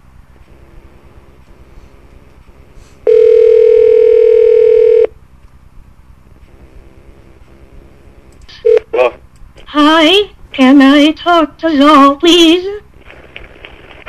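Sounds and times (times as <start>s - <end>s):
telephone ringback tone: 3.0s - 5.1s.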